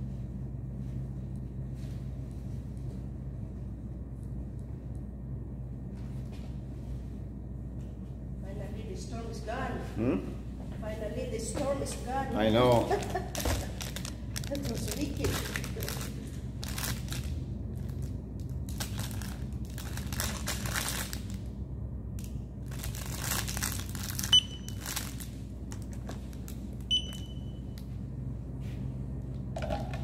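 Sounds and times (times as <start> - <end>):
low hum: 0.0 - 12.3, 12.9 - 30.0
packaging crinkling: 13.0 - 21.4, 22.6 - 26.6
barcode scanner beeps: 24.3 - 24.8, 26.9 - 27.6.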